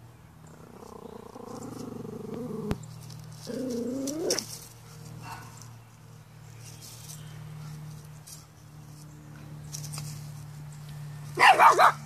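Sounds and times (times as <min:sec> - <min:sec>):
dog growling playfully: 0:00.5 - 0:02.8, 0:03.5 - 0:04.4.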